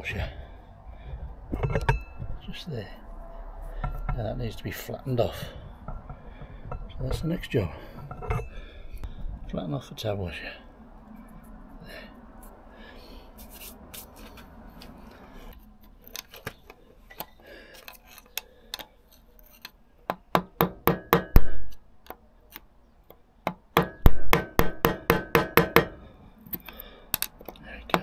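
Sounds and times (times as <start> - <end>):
hammer striking metal punch: 20.1 - 21.5, 23.5 - 26.0.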